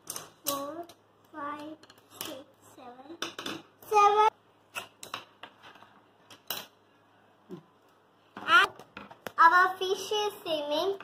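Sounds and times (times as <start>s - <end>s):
pencils tapping on wooden table: 0.0s - 1.0s, 3.2s - 3.7s, 4.7s - 6.8s, 8.3s - 9.4s
child's voice: 0.4s - 3.2s, 3.8s - 4.4s, 9.4s - 11.0s.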